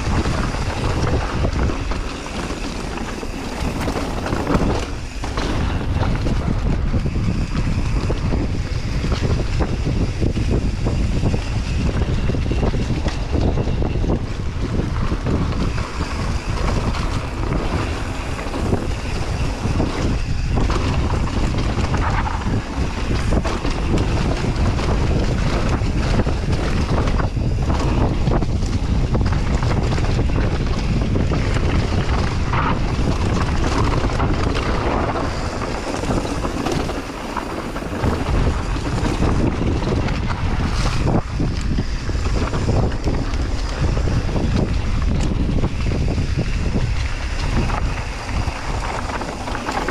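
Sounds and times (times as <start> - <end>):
bike knocks and rattles: 0.0 - 49.9
low rumble of bike on dirt: 0.0 - 49.9
wind buffeting microphone: 0.0 - 49.9.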